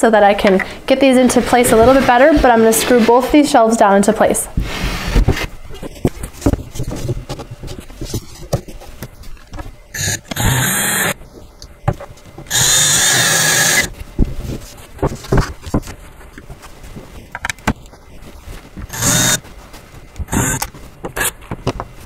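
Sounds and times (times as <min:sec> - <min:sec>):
cordless drill driving bolts: 0:10.0 - 0:11.2, 0:12.5 - 0:13.9, 0:18.9 - 0:19.4, 0:20.3 - 0:21.3.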